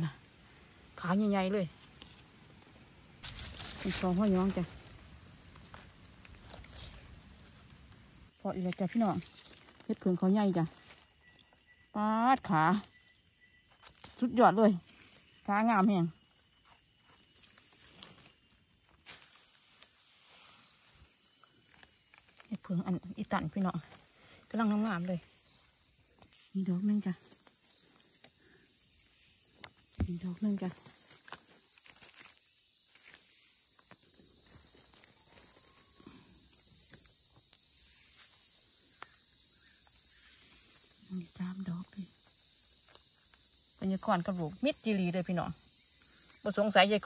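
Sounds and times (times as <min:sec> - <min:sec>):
insect high-pitched drone: 0:00.0 - 0:47.0
footsteps in leaf litter: 0:03.2 - 0:07.6.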